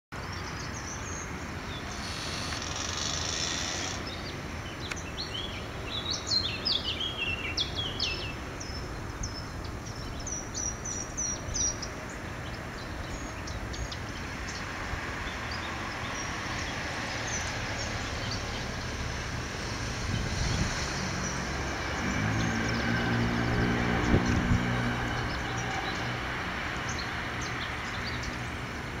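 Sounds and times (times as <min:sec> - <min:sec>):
songbird chirping: 0:00.2 - 0:19.3.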